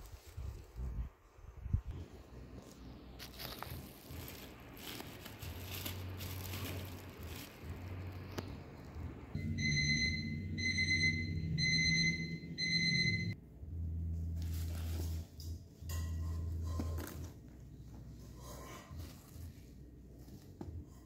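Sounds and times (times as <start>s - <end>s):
bubble wrap crinkling: 0.0s - 1.0s, 2.6s - 9.4s
held low bass tone: 1.6s - 18.3s.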